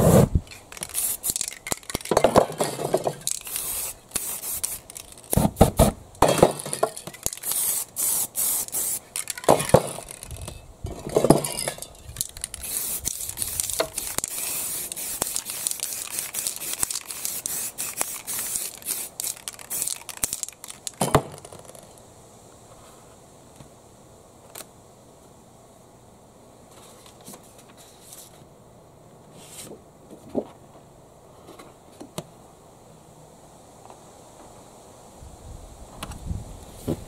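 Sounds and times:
spray paint can hissing: 0:00.0 - 0:06.0, 0:06.6 - 0:10.6, 0:11.5 - 0:21.0.

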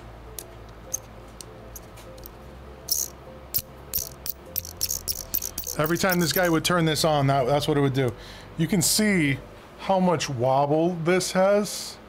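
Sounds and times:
high-pitched fan squeaks: 0:02.8 - 0:06.7.

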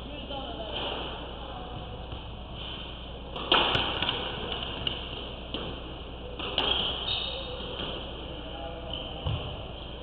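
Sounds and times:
squash ball hits: 0:03.3 - 0:08.1.

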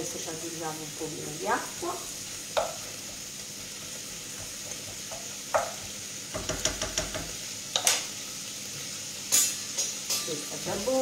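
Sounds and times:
food sizzling in oil: 0:00.0 - 0:11.0
utensil knocking on pan: 0:02.6 - 0:02.8, 0:04.3 - 0:08.0.

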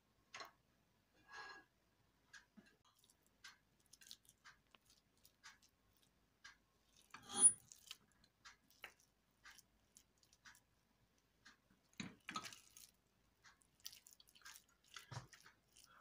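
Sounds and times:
porridge scrape and squish: 0:06.8 - 0:10.8, 0:12.0 - 0:16.0
spoon scraping metal pot: 0:07.1 - 0:07.7.

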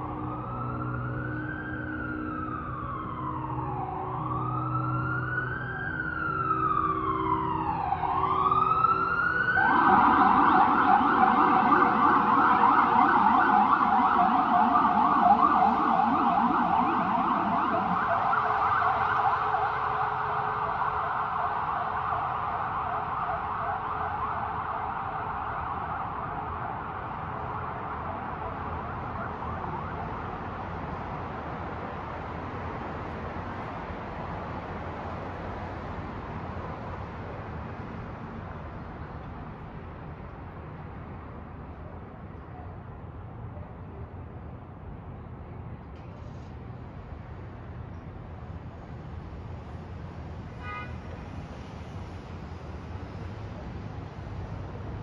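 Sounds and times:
emergency siren wailing and yelping: 0:00.0 - 0:31.1.

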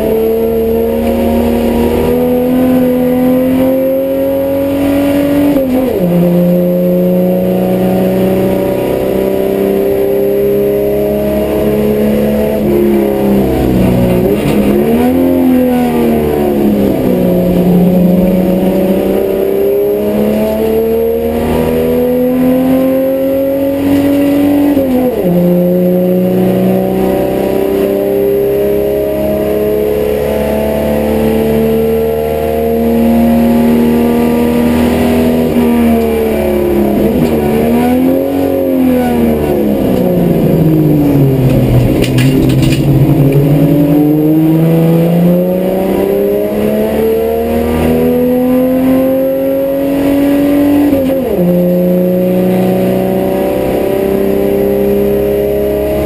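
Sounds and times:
race car engine under load: 0:00.0 - 0:56.0.

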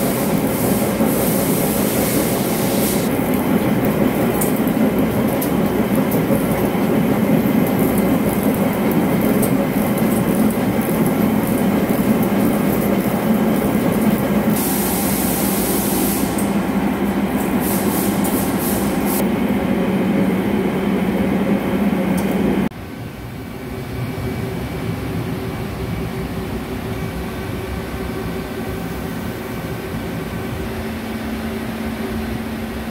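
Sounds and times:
high hiss: 0:00.0 - 0:03.1, 0:14.4 - 0:16.7, 0:17.3 - 0:19.2.

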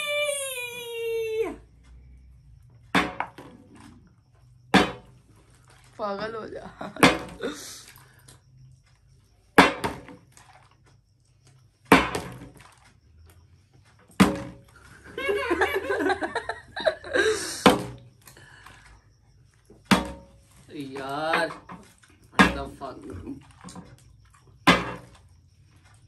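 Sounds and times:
plastic bottle thudding on glass: 0:02.9 - 0:03.6, 0:04.7 - 0:05.2, 0:06.8 - 0:07.5, 0:09.6 - 0:10.2, 0:11.9 - 0:12.6, 0:14.1 - 0:14.6, 0:17.6 - 0:18.1, 0:19.9 - 0:20.4, 0:21.4 - 0:22.9, 0:24.6 - 0:25.1
person laughing: 0:15.0 - 0:17.6.

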